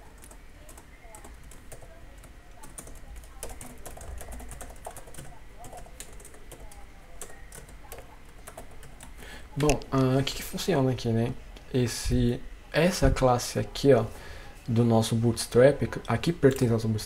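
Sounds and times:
keyboard typing: 0.0 - 10.2, 15.9 - 16.8.

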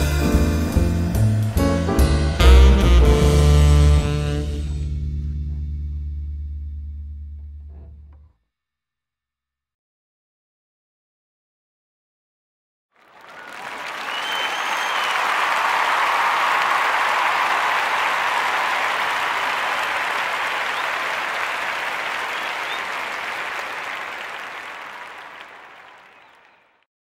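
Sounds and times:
audience applauding: 13.0 - 26.8
faint whistle: 13.2 - 26.8.

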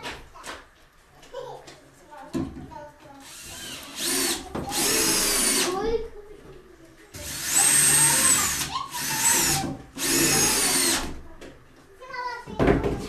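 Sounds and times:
cordless drill whining: 3.2 - 5.7, 7.2 - 11.1.

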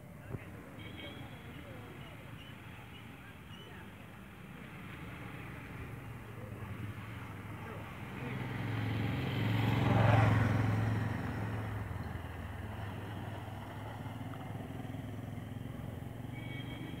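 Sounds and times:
vehicle engine humming: 4.6 - 17.0.

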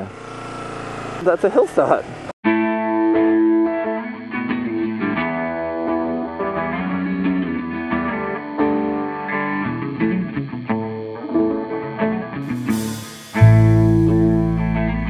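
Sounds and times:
instrumental background music: 11.0 - 15.0.

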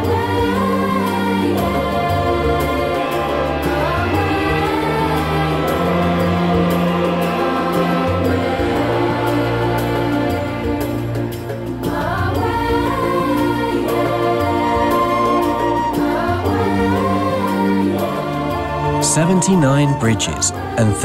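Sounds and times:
choir singing: 0.0 - 21.0
sustained low chords: 15.6 - 21.0.

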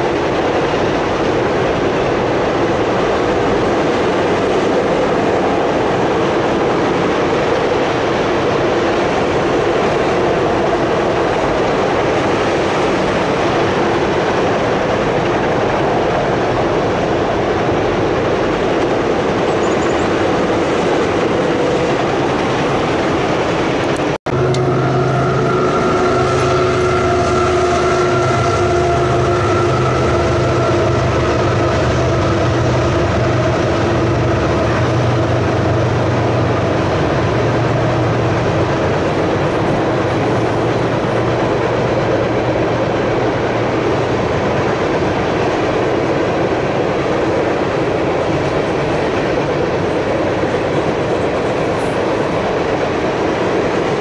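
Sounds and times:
freight train cars rumbling: 0.0 - 54.0
steady whining tones: 14.9 - 45.2.

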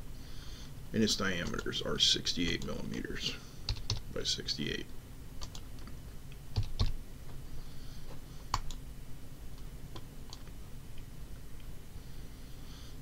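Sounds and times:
computer keyboard keystrokes: 1.4 - 1.6, 5.4 - 5.9, 6.6 - 7.0, 8.5 - 8.8, 10.0 - 10.5.

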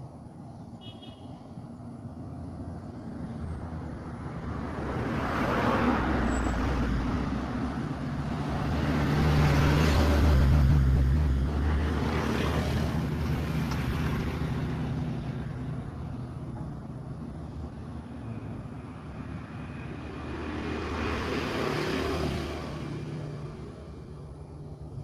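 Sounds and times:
vehicles passing: 0.0 - 25.0
low engine hum: 7.0 - 25.0.

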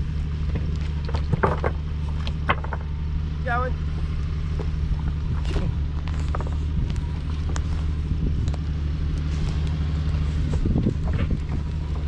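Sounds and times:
truck engine running: 0.0 - 12.0
tyres knocking on rocks: 0.6 - 3.0.

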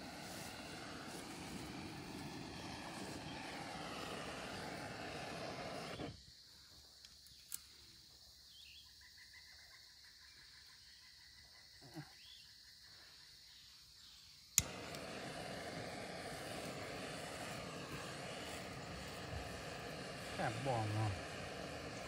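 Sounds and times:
faint bird chirps: 5.5 - 14.6
small click: 7.0 - 7.7.

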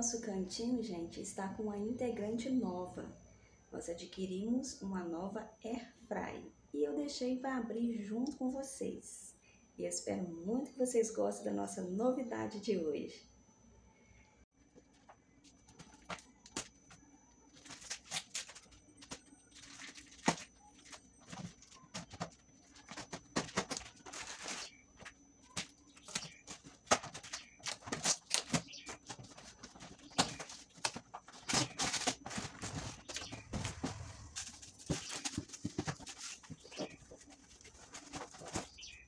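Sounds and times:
cardboard flaps rustling: 17.6 - 39.0.

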